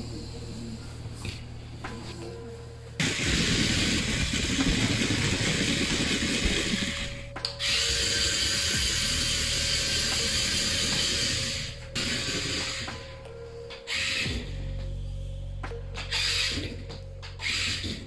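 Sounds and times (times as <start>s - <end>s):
toy motor and gears whirring: 3.0s - 13.1s, 13.9s - 14.5s, 16.0s - 18.0s.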